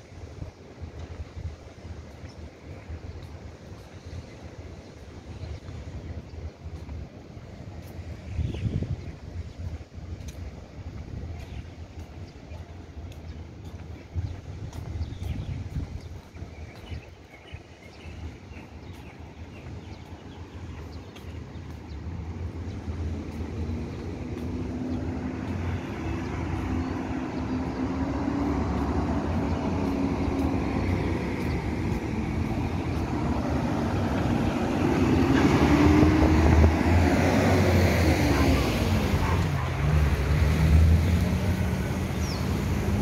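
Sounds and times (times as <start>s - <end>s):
wind rumble on microphone: 0.0s - 43.0s
vehicle engine humming: 17.8s - 43.0s.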